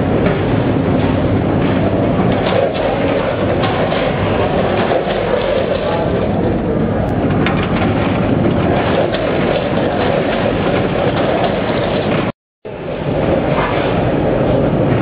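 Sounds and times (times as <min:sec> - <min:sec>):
weighing machine clattering: 0:00.1 - 0:06.6, 0:07.3 - 0:12.3.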